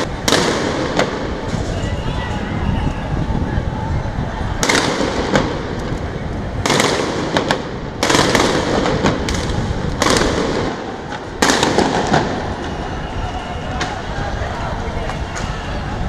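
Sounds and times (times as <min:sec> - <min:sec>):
heavy gunshots echoing: 0:00.0 - 0:01.5, 0:04.6 - 0:05.7, 0:06.6 - 0:12.9
sharp gunshot cracks: 0:00.2 - 0:01.3, 0:04.6 - 0:05.6, 0:06.6 - 0:12.4.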